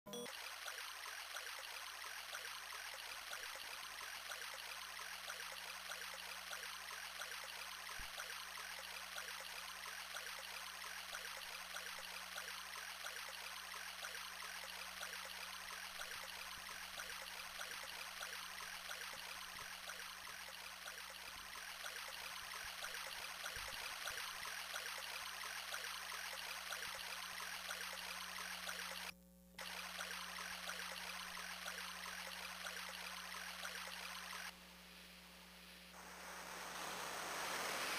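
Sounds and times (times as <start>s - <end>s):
rushing water sound: 36.0s - 37.9s.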